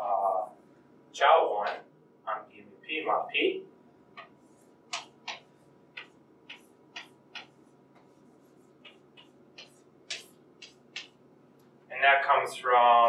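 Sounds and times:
chalk tapping on chalkboard: 4.2 - 11.2.

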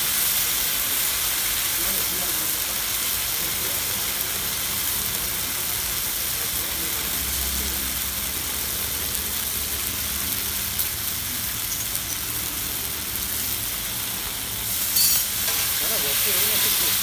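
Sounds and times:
paste sizzling on iron griddle: 0.0 - 17.0
water hissing into steam: 12.4 - 17.0.

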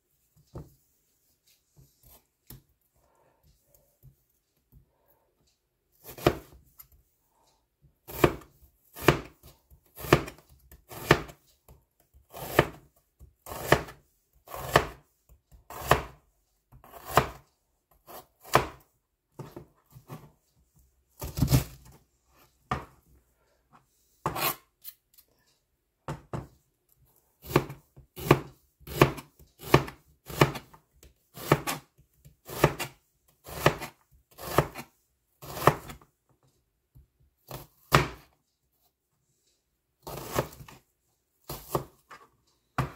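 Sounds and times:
knife slicing onion on board: 6.0 - 6.6, 8.1 - 11.4, 12.3 - 15.0, 15.7 - 17.4, 18.0 - 18.8, 24.2 - 24.6, 27.4 - 36.0, 40.0 - 40.8, 41.4 - 42.0.

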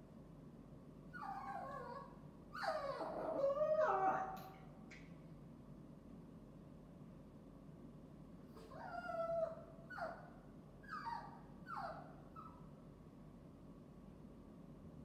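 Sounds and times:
puppy whining and crying: 1.2 - 4.5, 8.6 - 12.7.

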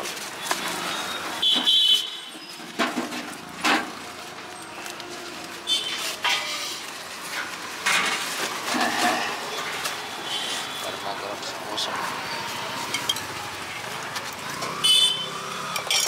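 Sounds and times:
foam bowl squeak: 0.2 - 3.6, 5.5 - 7.0, 11.9 - 13.6
food crackling in foam bowl: 3.3 - 10.8.

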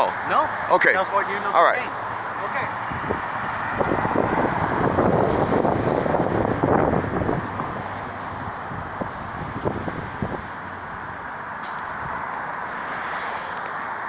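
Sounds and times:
vehicle passing: 0.0 - 14.0
wind on microphone: 2.8 - 12.2.

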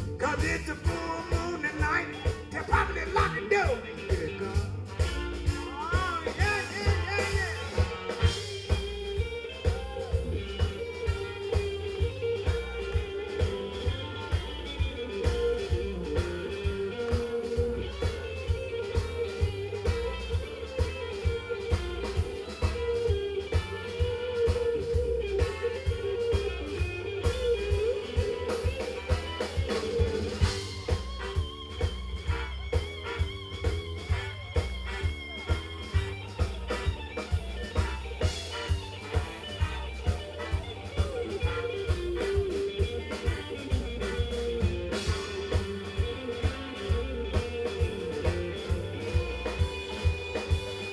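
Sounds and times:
bass: 0.0 - 50.9
drum kit beat: 0.0 - 50.9
electric guitar lead line: 0.0 - 50.9
keyboard: 0.0 - 50.9.

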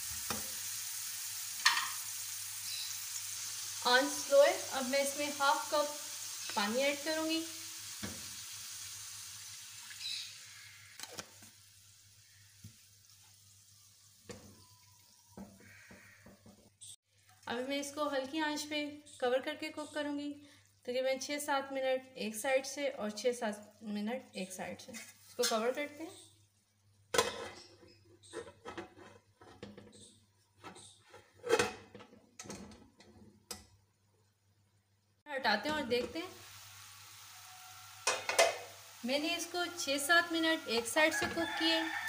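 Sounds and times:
chicken sizzling in a frying pan: 0.0 - 16.6, 35.5 - 42.0
water poured into pan: 5.9 - 15.2, 36.2 - 39.1
metal pan lid clank: 38.0 - 38.7.

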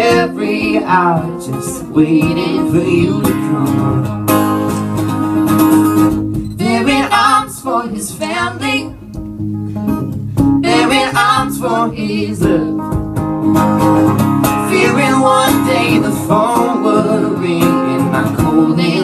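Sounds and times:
people singing with vibrato: 0.0 - 4.8, 6.5 - 9.0, 10.5 - 13.1, 14.5 - 19.0
acoustic guitar strumming: 0.0 - 19.0.

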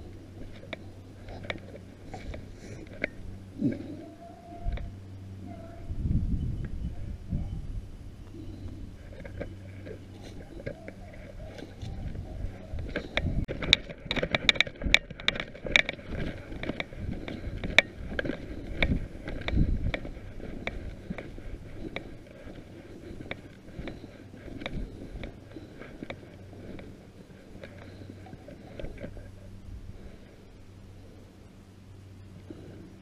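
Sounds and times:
rustling in dry brush: 7.0 - 30.4.

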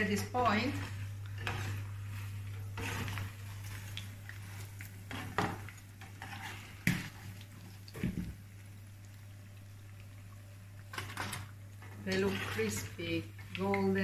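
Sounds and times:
steady low hum: 0.0 - 14.0
metal utensils scraping a pan: 2.7 - 3.3, 12.0 - 13.0.

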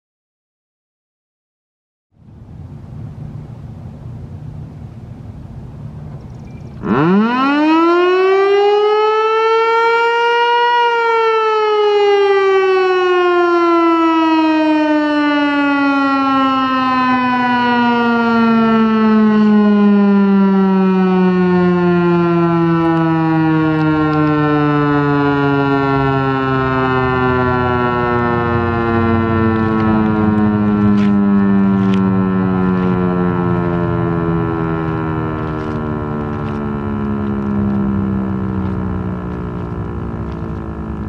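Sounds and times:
warning siren rising and falling: 5.6 - 41.0.

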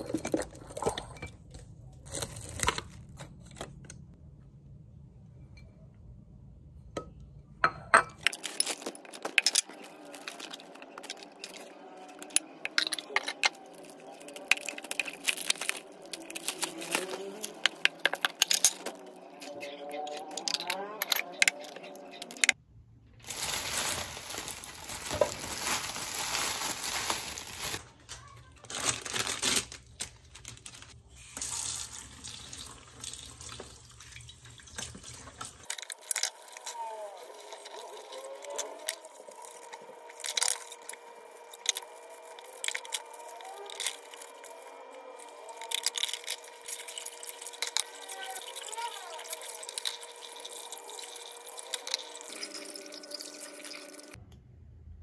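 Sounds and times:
plastic packaging crinkling: 8.3 - 19.2, 23.2 - 31.0, 40.1 - 54.1.

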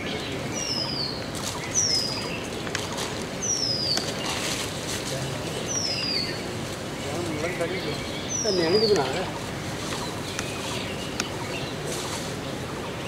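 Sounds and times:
outdoor background hiss: 0.0 - 13.0.

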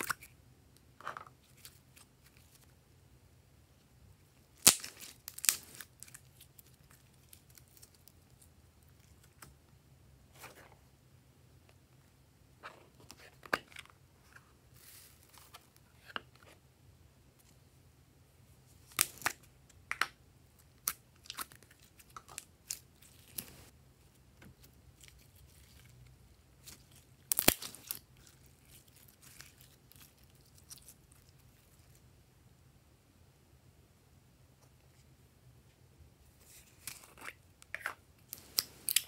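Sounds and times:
slime crackling and squishing: 24.6 - 32.0.

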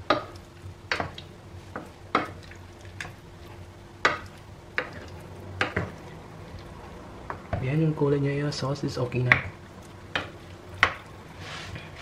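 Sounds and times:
faint steady hum: 0.0 - 12.0
wooden spoon scraping pan: 11.3 - 12.0.

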